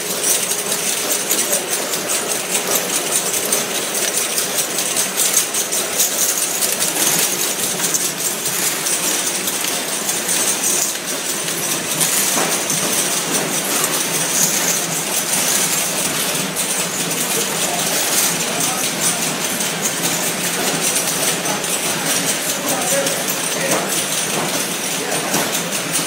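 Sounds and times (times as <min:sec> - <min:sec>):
machine clattering: 0:00.0 - 0:26.0.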